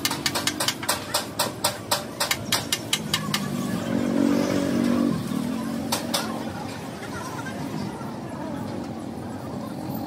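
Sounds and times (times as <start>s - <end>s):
engine revving: 3.1s - 5.9s.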